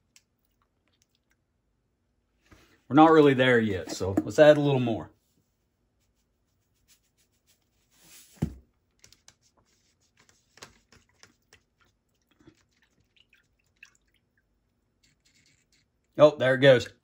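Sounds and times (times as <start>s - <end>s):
water stirred by hand: 10.2s - 16.0s.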